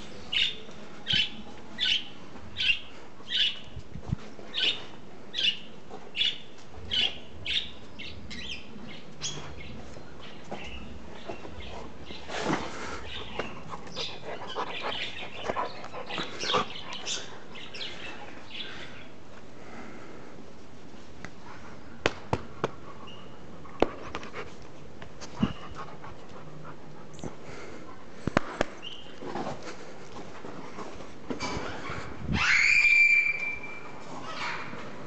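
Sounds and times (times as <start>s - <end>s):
dog panting: 12.8s - 17.7s, 22.7s - 28.4s.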